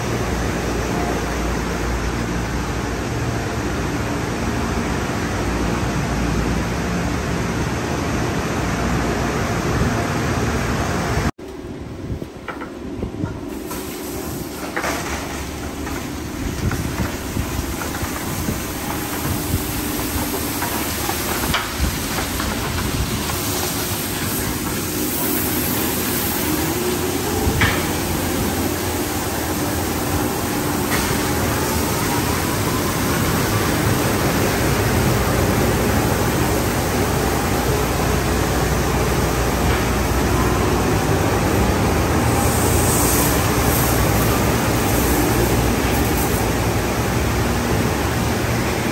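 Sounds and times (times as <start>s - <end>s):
machinery running: 12.5s - 48.9s.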